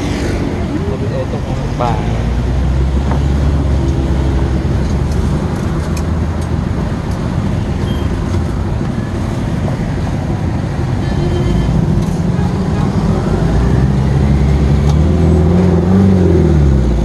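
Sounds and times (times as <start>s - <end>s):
low rumble of street traffic: 0.0s - 17.0s.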